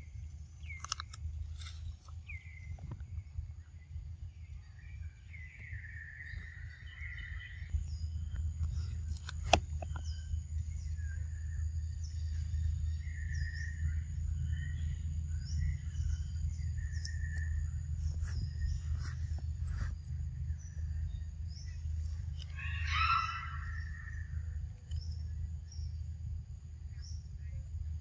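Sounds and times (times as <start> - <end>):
birds chirping: 0.0 - 28.0
low rumble: 0.0 - 28.0
sharp click: 0.7 - 1.7.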